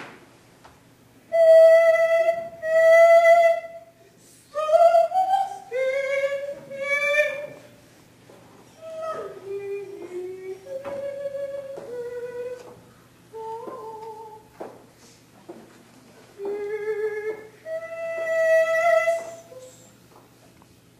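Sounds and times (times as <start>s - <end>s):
person singing a slow tune: 1.3s - 7.8s, 8.7s - 14.6s, 16.4s - 20.0s.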